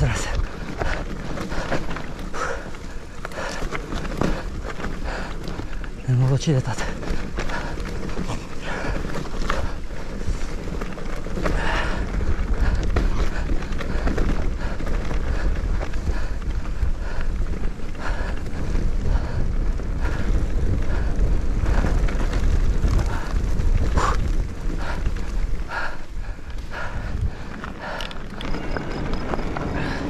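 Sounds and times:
wind rumbling on microphone: 0.0s - 30.0s
bike knocks and rattles: 6.8s - 25.8s.

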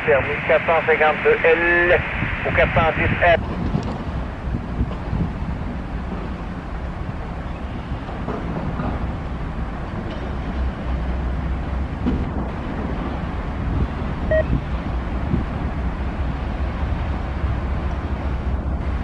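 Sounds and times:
diesel locomotive engine rumble: 0.0s - 19.0s
steel wheels on rails: 3.4s - 19.0s
brief high tone: 14.3s - 14.6s.

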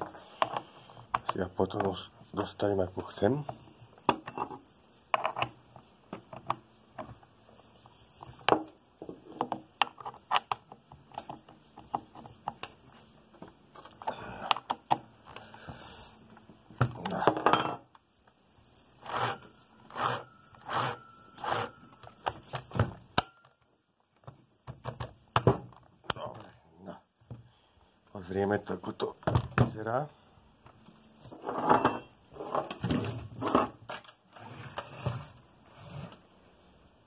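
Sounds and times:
spanner clinking and scraping on nut: 0.0s - 25.8s, 30.7s - 35.8s.

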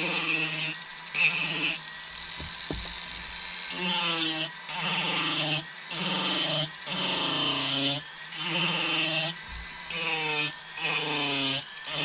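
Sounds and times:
rotary carving tool grinding wood: 0.0s - 12.0s.

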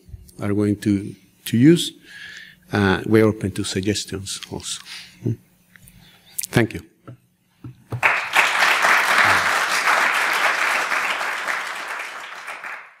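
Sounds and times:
audience applauding: 8.0s - 13.0s.

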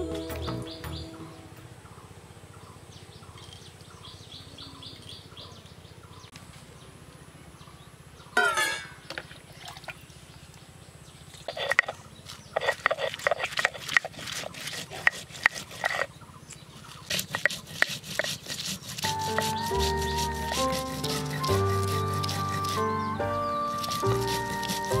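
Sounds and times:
small birds chirping: 0.1s - 25.0s
utensils clicking and knocking: 17.1s - 22.8s.

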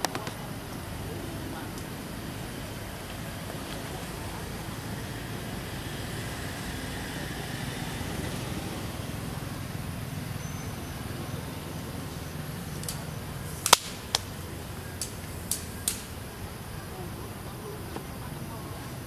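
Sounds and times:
low outdoor rumble: 0.0s - 19.0s
sharp clicks: 12.8s - 14.4s, 15.0s - 16.1s.

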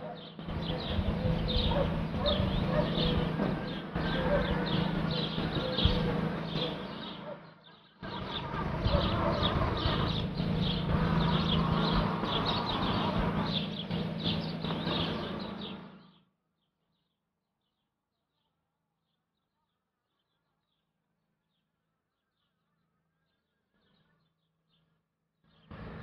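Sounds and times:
steady low hum: 0.0s - 16.6s, 25.5s - 26.0s.

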